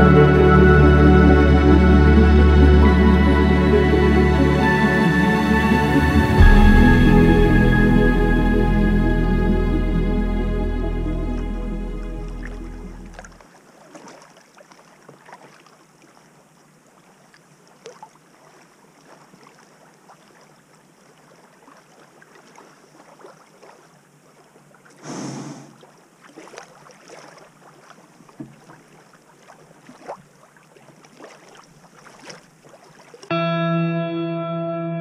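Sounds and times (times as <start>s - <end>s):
paddle drips and splashes: 12.3s - 33.3s
paddle stroke swish: 24.9s - 33.3s.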